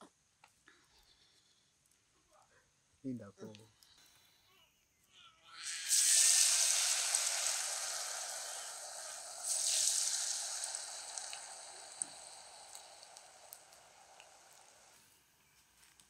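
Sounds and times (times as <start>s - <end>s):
food deep-frying in hot oil: 5.6s - 15.0s.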